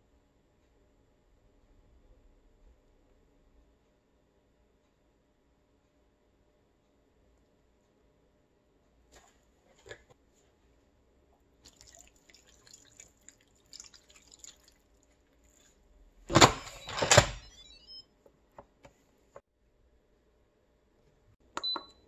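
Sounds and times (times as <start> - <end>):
liquid trickling and dripping: 11.4 - 15.8.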